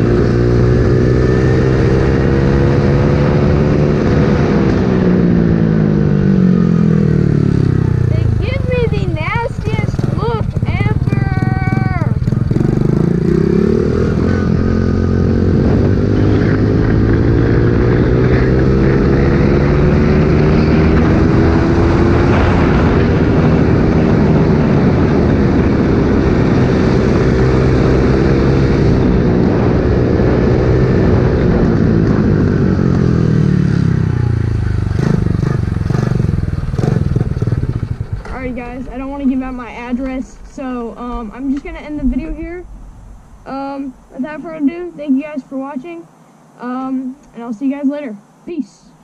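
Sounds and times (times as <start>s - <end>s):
small motorbike engine accelerating: 0.0s - 38.6s.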